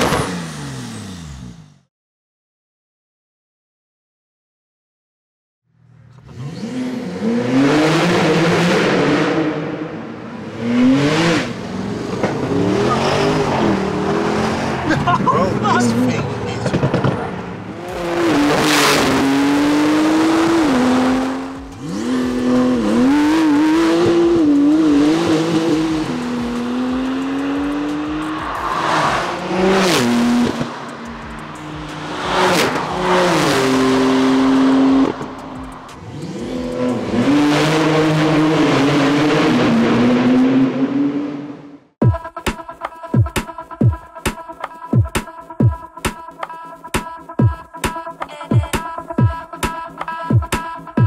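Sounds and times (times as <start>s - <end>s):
car engine accelerating hard: 0.0s - 1.9s, 5.8s - 42.0s
cars whooshing past: 6.2s - 41.8s.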